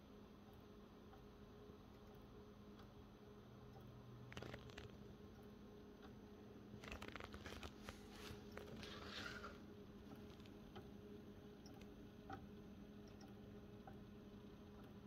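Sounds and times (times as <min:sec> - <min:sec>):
soft rustle: 0:06.8 - 0:09.6.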